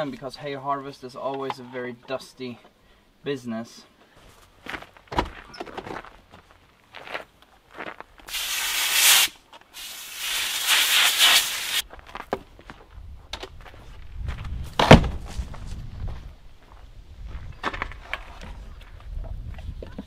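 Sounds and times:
compressed air blow gun hissing: 0:08.3 - 0:11.8
sharp thump: 0:14.8 - 0:15.3.

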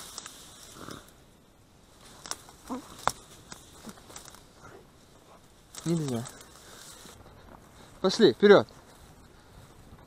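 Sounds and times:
dry stems rustling and crackling: 0:00.0 - 0:01.2, 0:01.8 - 0:10.0
sharp snaps: 0:02.2 - 0:04.4.

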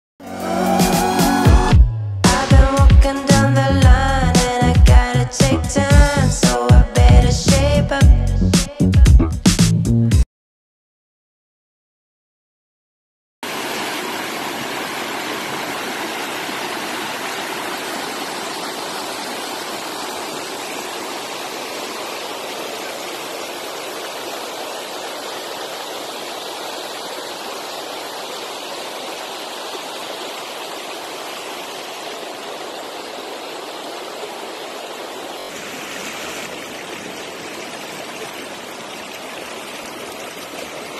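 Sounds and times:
stream running over rocks: 0:13.4 - 0:40.9.

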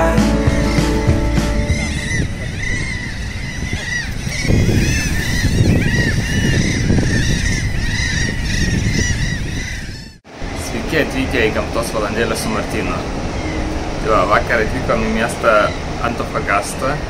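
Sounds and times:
seabirds crying: 0:00.4 - 0:17.0
low rushing noise: 0:10.2 - 0:17.0.

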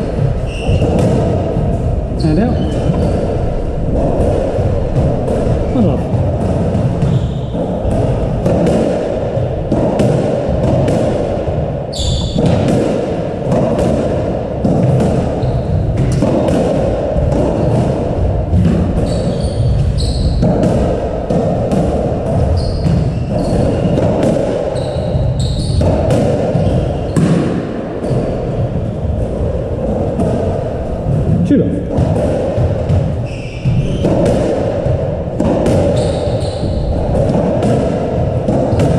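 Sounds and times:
shoes squeaking on wooden floor: 0:00.0 - 0:01.3, 0:02.2 - 0:03.7, 0:07.0 - 0:07.8, 0:11.9 - 0:12.6, 0:15.4 - 0:16.1, 0:19.0 - 0:20.5, 0:22.5 - 0:24.0, 0:24.7 - 0:25.9, 0:33.2 - 0:34.3, 0:35.8 - 0:37.0
steady low rumble: 0:00.0 - 0:09.7
squash ball striking rackets and walls: 0:00.0 - 0:38.9.

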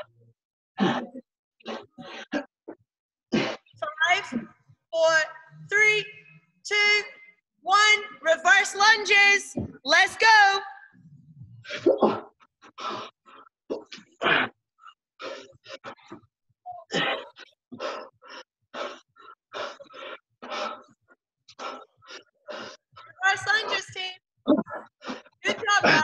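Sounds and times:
person breathing hard: 0:17.7 - 0:22.8.

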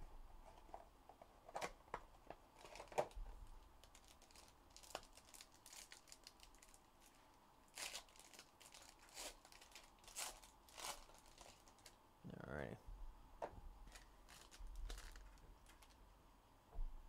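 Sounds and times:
foil wrapper crinkling: 0:02.6 - 0:12.0, 0:13.8 - 0:16.0.

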